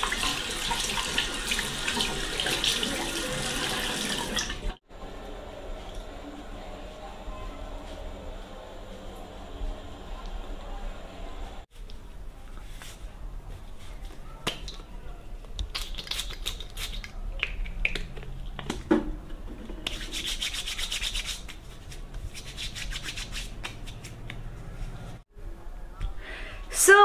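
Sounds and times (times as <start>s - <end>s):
palms rubbing together: 19.8s - 25.2s.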